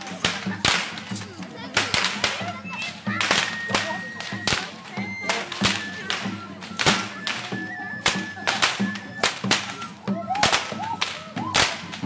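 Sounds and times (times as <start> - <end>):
drum beats: 0.0 - 12.0
flute playing long high notes: 2.4 - 12.0.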